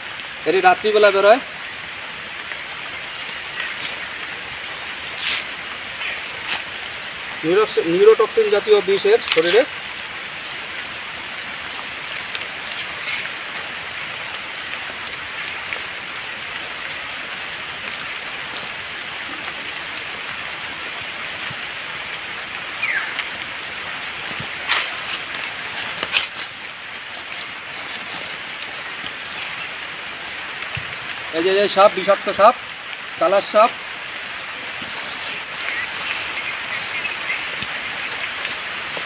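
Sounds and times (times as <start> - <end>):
rain on leaves: 0.0 - 39.0.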